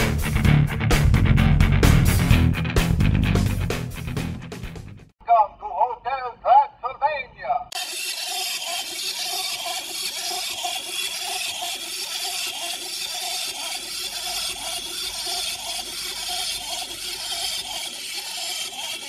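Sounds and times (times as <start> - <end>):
toy walking mechanism whirring: 7.7 - 19.0.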